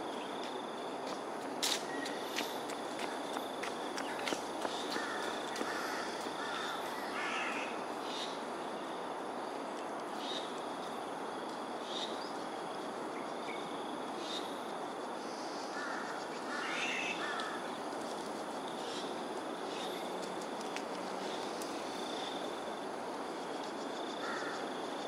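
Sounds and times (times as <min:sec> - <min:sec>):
crows cawing: 0:04.9 - 0:07.7, 0:15.7 - 0:17.7, 0:24.2 - 0:24.6.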